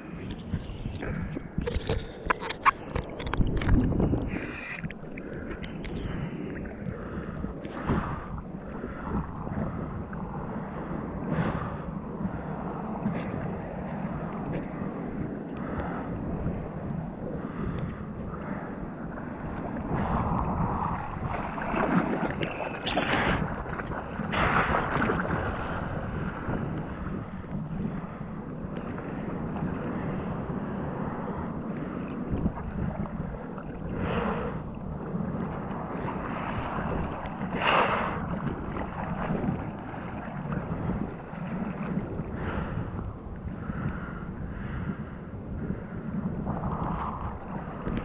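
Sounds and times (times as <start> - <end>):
water sloshing and splashing: 0.0 - 10.3, 17.4 - 30.5, 31.2 - 43.4
wind buffeting microphone: 0.0 - 48.0.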